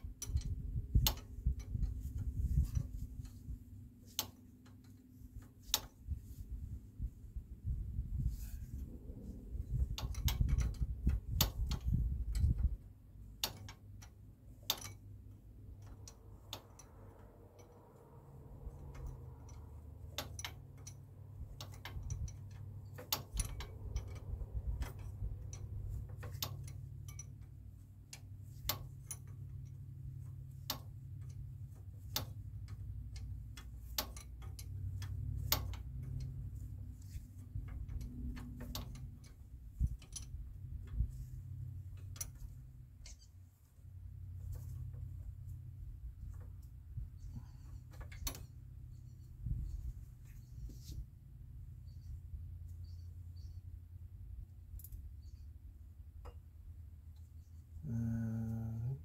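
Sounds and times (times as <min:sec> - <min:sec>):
low steady rumble: 0:00.0 - 0:59.0
hand tools clicking on metal: 0:13.3 - 0:43.3.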